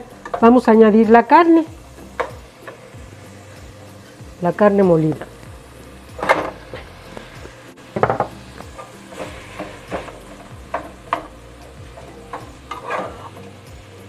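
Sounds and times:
light sizzling: 0.0s - 14.0s
plastic spatula scraping pan: 9.1s - 10.2s, 12.7s - 13.4s.

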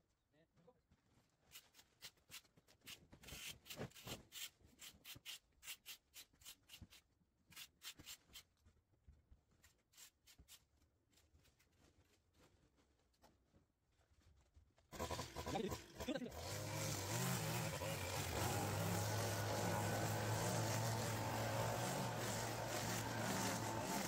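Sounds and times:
rake scraping through grass: 16.4s - 24.0s.

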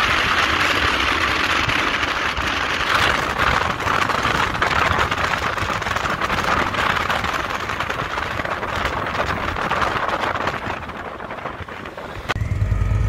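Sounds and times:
motorcycle engine rumbling: 0.0s - 13.0s
road noise: 0.0s - 13.0s
rushing wind: 0.0s - 13.0s.

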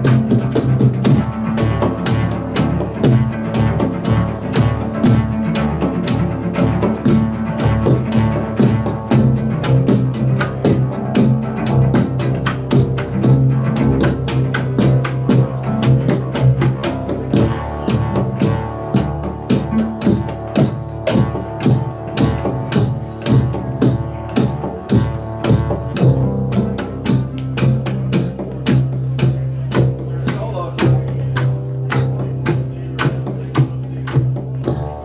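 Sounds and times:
cello bass line: 0.0s - 35.0s
percussive cello strokes: 0.0s - 35.0s.

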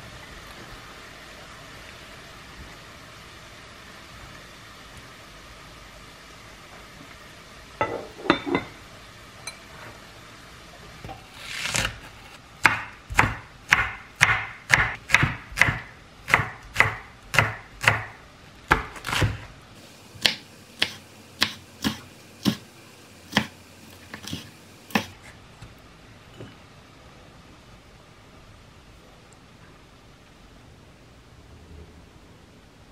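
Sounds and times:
knife chopping on wooden board: 12.6s - 19.4s, 20.2s - 22.7s, 23.3s - 25.2s.

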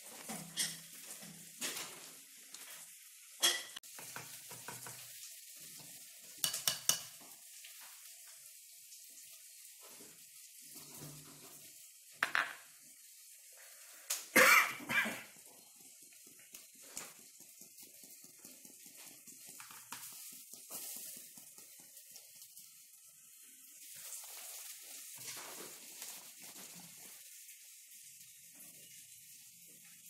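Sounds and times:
kitchen clinks and knocks: 3.4s - 3.8s.

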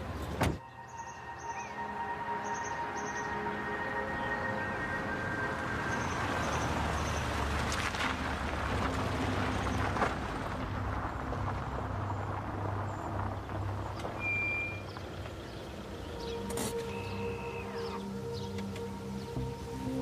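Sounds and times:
car tyre and engine noise: 4.5s - 20.0s.

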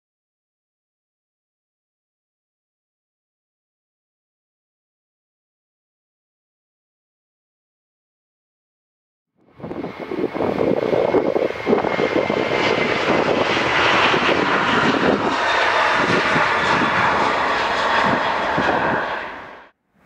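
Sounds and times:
jet engines roaring: 9.4s - 19.8s.

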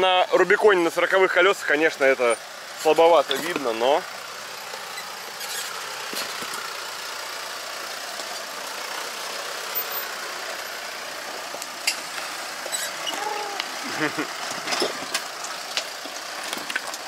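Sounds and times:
off-road vehicle engine running: 0.0s - 17.0s.

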